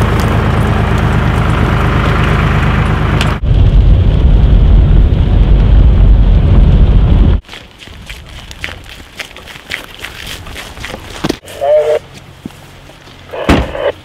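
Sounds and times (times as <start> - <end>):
tractor engine running: 0.0 - 7.4
car driving low rumble: 0.0 - 14.0.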